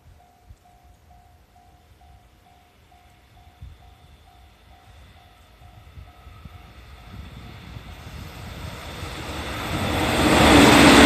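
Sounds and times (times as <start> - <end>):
train rumbling past: 0.0 - 11.0
level-crossing alarm bell ringing: 0.2 - 7.3.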